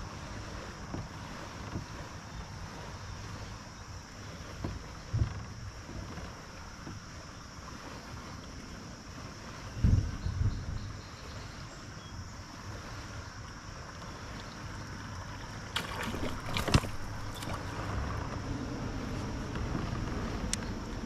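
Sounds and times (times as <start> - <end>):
water noise: 0.0 - 21.0
wind: 0.0 - 21.0.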